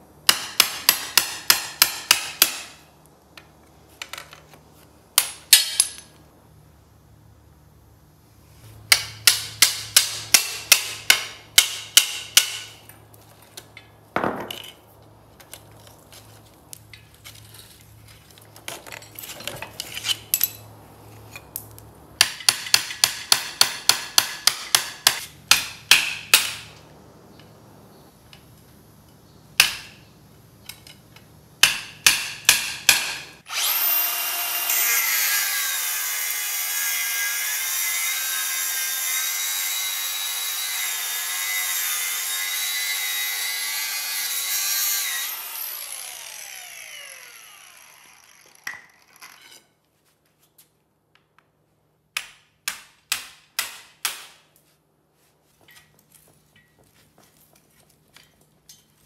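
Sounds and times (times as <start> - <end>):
angle grinder cutting metal: 33.5 - 49.6.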